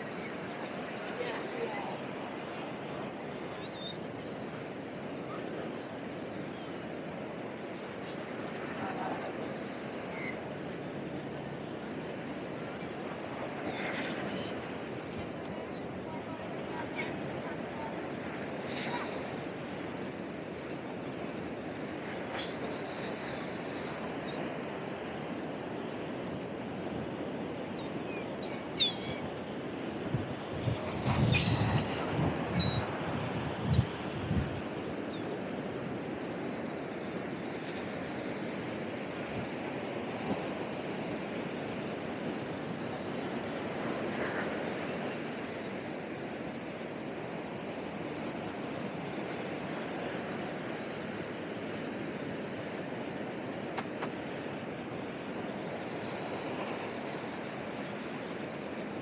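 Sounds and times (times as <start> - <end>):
ocean surf breaking: 0.0 - 59.0
wind rumbling on microphone: 26.7 - 35.2
high-pitched bird calls: 27.8 - 29.2.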